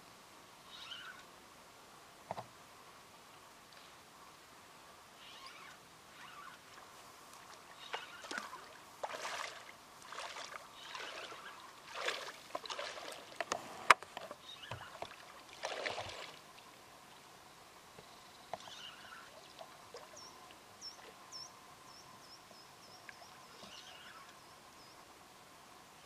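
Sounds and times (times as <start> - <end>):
legs wading through water: 5.2 - 16.8, 18.6 - 21.3.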